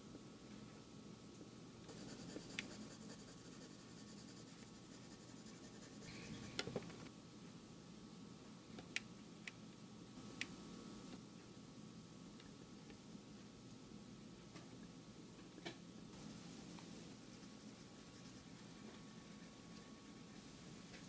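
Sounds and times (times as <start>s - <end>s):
sharp pencil ticks: 1.9s - 6.0s
pencil scratching on paper: 1.9s - 6.6s, 16.5s - 21.0s.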